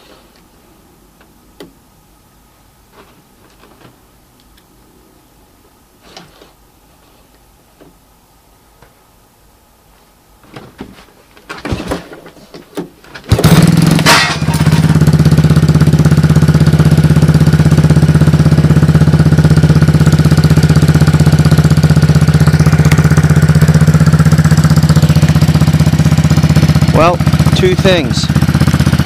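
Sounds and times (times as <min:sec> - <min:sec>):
atv engine starting and running: 0:13.2 - 0:29.0.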